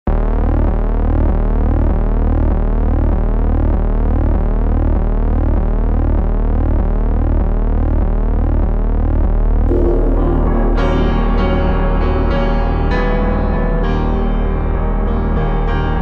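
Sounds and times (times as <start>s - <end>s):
deep bass note: 0.1s - 16.0s
synthesizer drone: 0.1s - 16.0s
sweeping synth tones: 9.7s - 15.7s.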